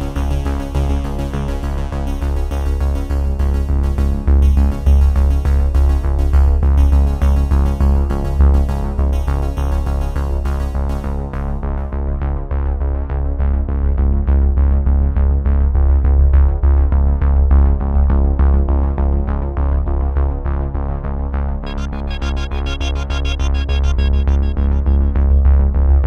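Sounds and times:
electronic music with heavy bass: 0:21.6 - 0:26.0.

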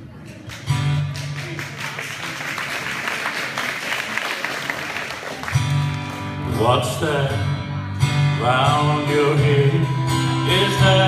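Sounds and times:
audience applause: 0:00.4 - 0:06.4.

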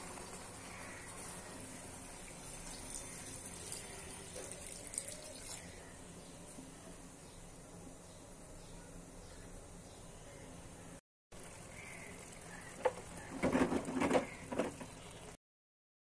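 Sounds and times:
curry simmering and bubbling: 0:00.0 - 0:05.9.

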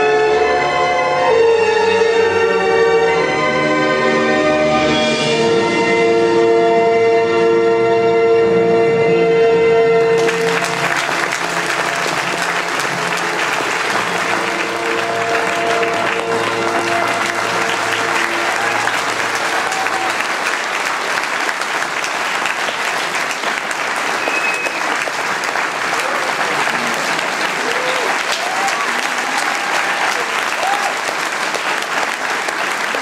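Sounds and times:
held music chord: 0:08.4 - 0:21.4
audience applauding: 0:10.2 - 0:33.0.

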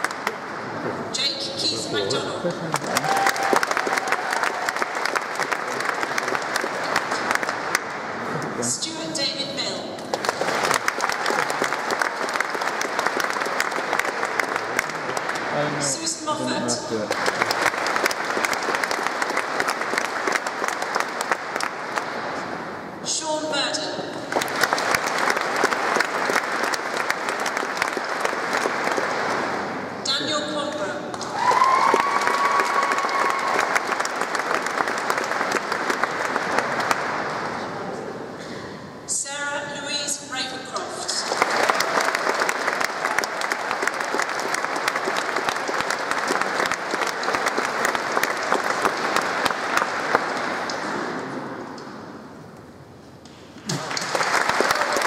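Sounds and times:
audience applauding: 0:00.0 - 0:00.9, 0:02.0 - 0:08.4, 0:10.0 - 0:16.0, 0:16.9 - 0:22.7, 0:24.2 - 0:30.0, 0:31.1 - 0:37.9, 0:41.1 - 0:52.0, 0:53.7 - 0:55.0.

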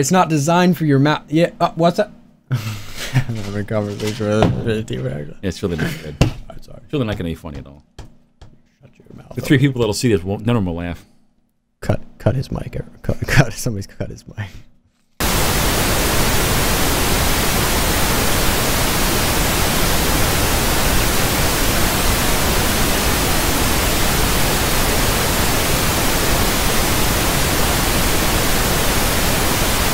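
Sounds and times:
tv static hiss: 0:15.2 - 0:29.9.

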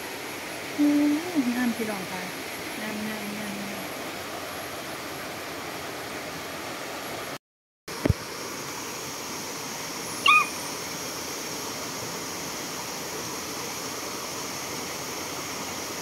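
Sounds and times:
short high-pitched animal call: 0:10.2 - 0:10.6.

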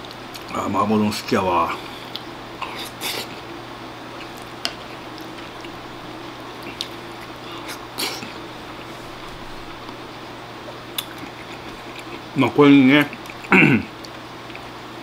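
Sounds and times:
steady low hum: 0:00.0 - 0:15.0
wet mouth noise eating: 0:02.0 - 0:03.5, 0:06.6 - 0:08.9, 0:10.6 - 0:12.3, 0:13.0 - 0:14.8.

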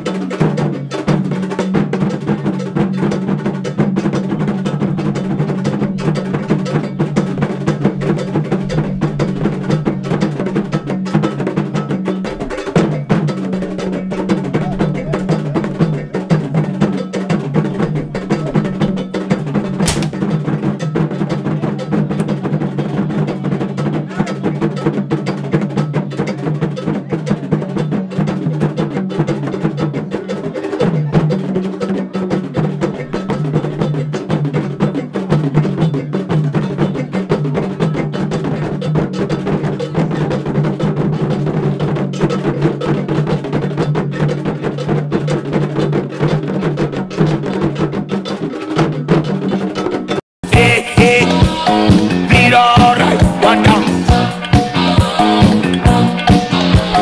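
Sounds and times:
drums: 0:00.0 - 0:57.0
sharp crack: 0:19.8 - 0:20.3
struck bell: 0:50.5 - 0:57.0.

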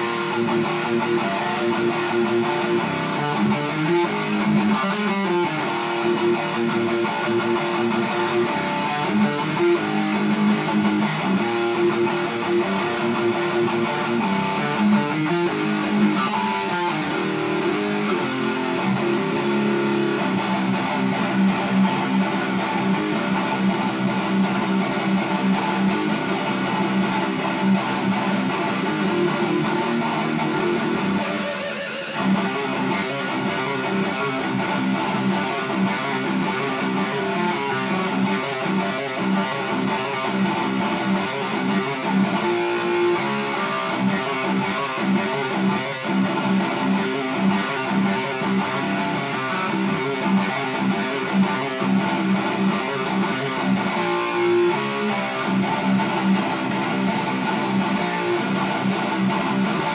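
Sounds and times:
electric guitar picked notes: 0:00.0 - 0:59.9.

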